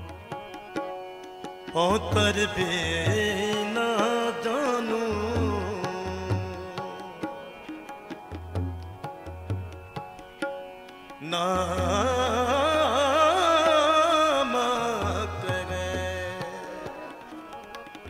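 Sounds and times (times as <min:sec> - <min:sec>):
harmonium: 0:00.0 - 0:18.0
tabla strokes: 0:00.0 - 0:18.0
person singing: 0:01.7 - 0:07.9, 0:11.2 - 0:18.0.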